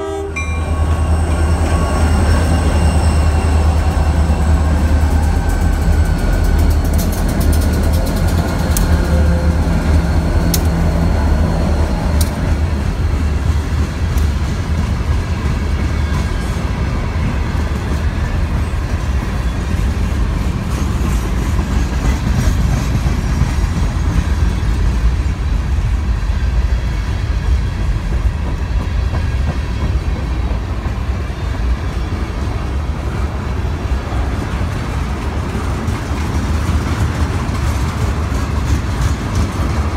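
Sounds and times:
diesel locomotive engines humming: 0.0 - 39.9
freight cars rumbling on rails: 0.0 - 39.9
train wheel clicks: 4.8 - 16.5, 34.4 - 39.9.

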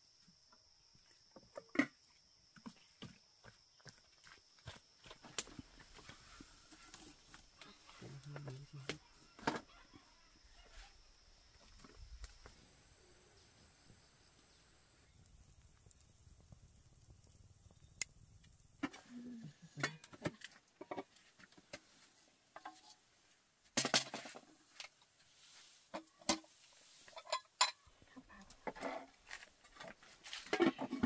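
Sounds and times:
dishes and utensils clinking: 27.1 - 27.8.

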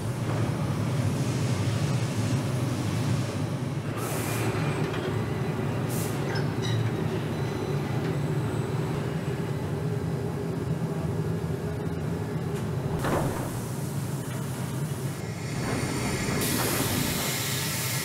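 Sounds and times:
burst of hiss: 15.9 - 18.0.

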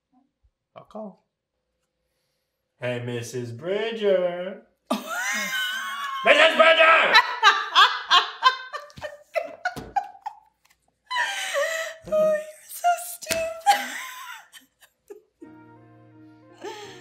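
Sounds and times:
woman laughing: 4.9 - 6.3, 7.1 - 10.5, 11.1 - 15.4
soft music with held chords: 15.4 - 17.0.

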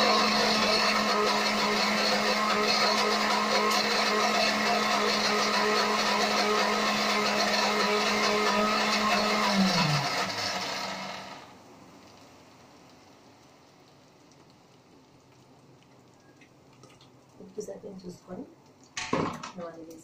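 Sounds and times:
mixer grinder motor whining: 0.0 - 11.6.

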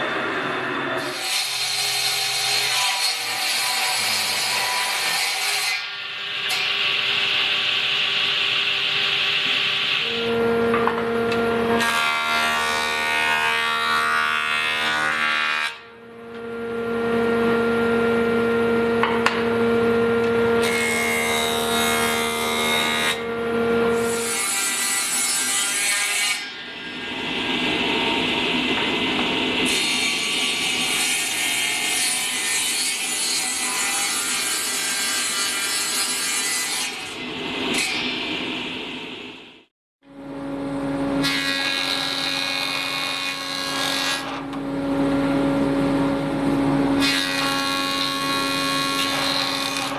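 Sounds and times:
table saw cutting wood: 0.0 - 39.0, 40.0 - 49.9
motor hum: 16.0 - 20.6, 44.4 - 47.0.

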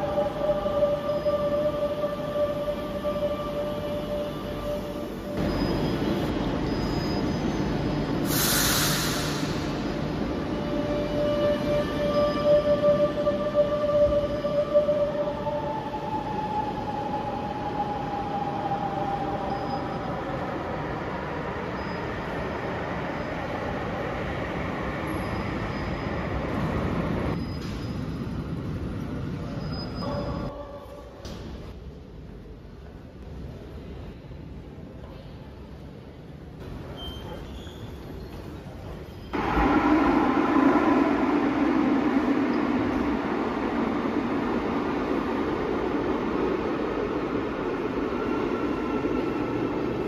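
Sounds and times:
electric train rumbling: 0.0 - 37.0, 38.0 - 50.0
high wheel squeal: 5.4 - 7.8, 25.0 - 26.4, 29.4 - 30.6, 37.0 - 39.4
compressed air hiss: 8.2 - 9.8.

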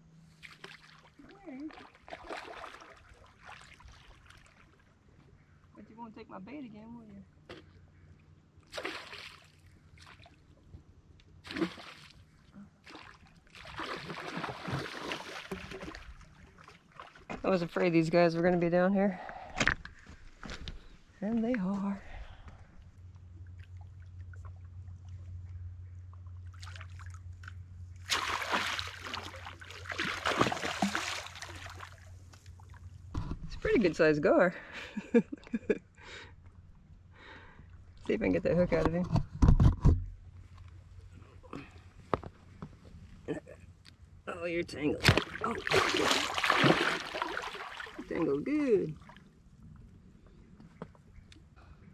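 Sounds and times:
fish splashing at the surface: 8.7 - 10.3, 12.9 - 16.2, 28.0 - 32.1, 45.0 - 48.2.

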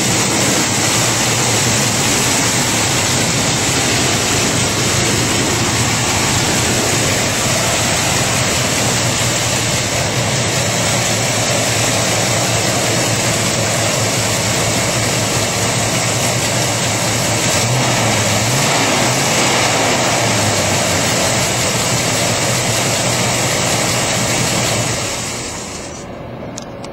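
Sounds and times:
heavy steady hiss: 0.0 - 17.4
pickup engine idling: 0.0 - 26.8.

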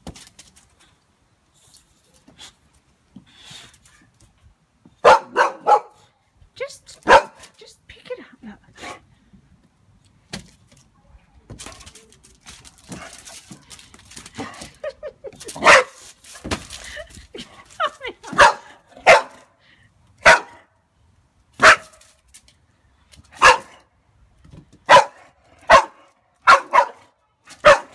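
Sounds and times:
dog barking: 5.0 - 6.0, 7.0 - 7.4, 15.6 - 16.0, 18.4 - 19.5, 20.2 - 20.6, 21.6 - 21.9, 23.4 - 23.8, 24.9 - 27.9.

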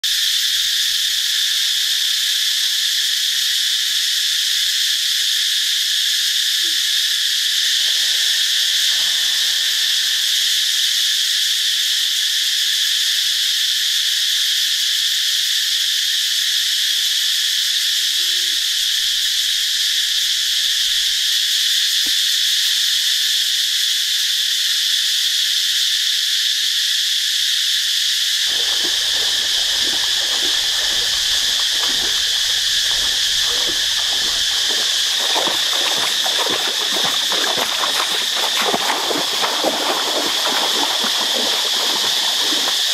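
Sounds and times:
insects buzzing: 0.0 - 14.4, 28.2 - 42.9.

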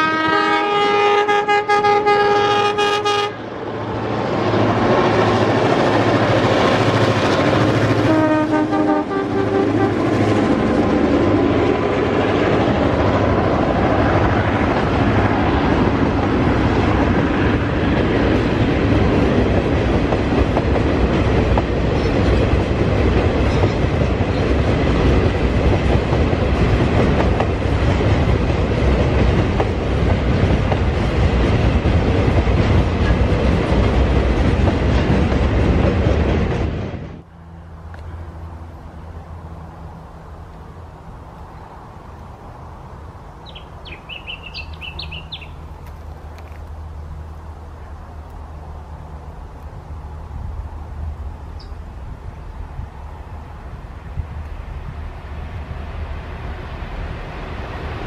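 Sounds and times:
locomotive horn: 0.0 - 3.5, 8.0 - 10.3
train wheels clattering over rail joints: 11.6 - 37.1
diesel engine drone: 37.2 - 44.4.

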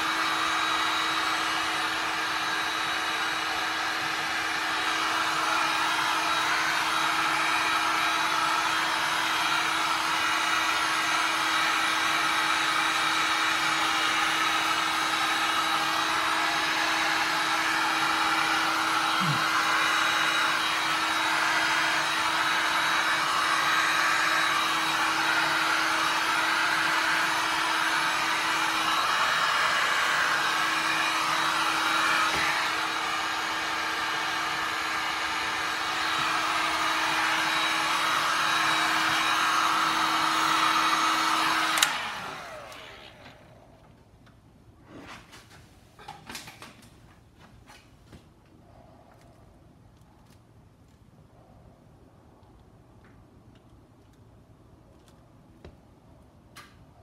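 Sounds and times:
heat gun blowing air: 0.0 - 43.6.

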